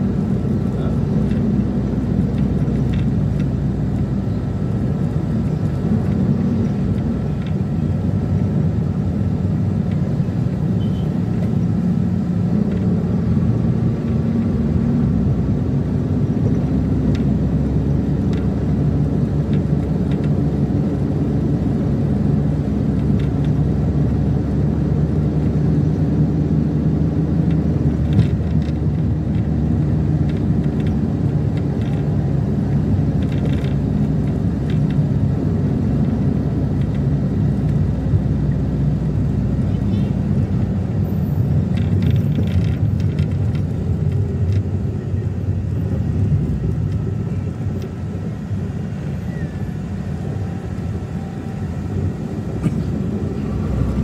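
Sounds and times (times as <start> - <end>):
engine drone: 0.0 - 54.0
road rumble: 0.0 - 54.0.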